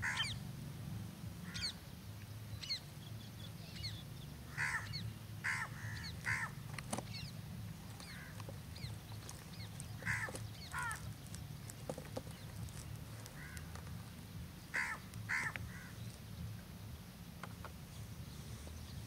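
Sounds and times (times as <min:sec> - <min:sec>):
harsh bird calls: 0:00.0 - 0:00.4, 0:01.4 - 0:01.8, 0:02.6 - 0:16.4.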